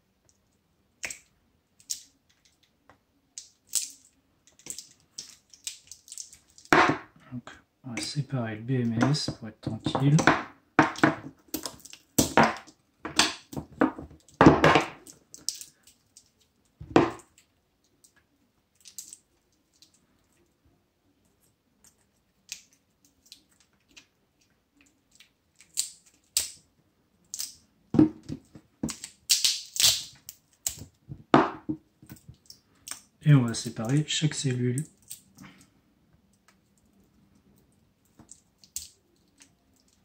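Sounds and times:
battery cells being handled: 0:03.4 - 0:06.8.

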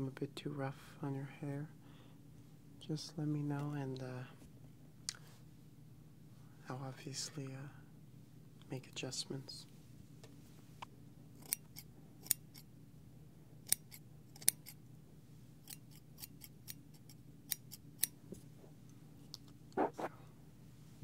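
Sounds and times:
scissors snipping: 0:13.7 - 0:14.8.

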